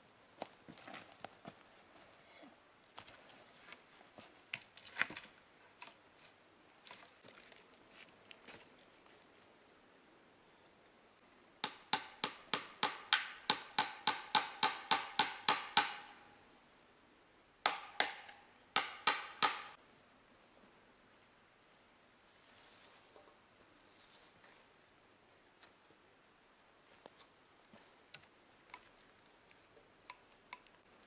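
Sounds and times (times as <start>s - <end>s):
hammer striking nail: 11.6s - 16.2s, 17.7s - 19.8s.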